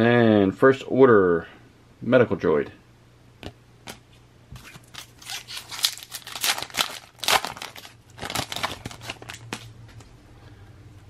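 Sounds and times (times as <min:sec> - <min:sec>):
foil wrapper tearing and crinkling: 0:04.6 - 0:09.7.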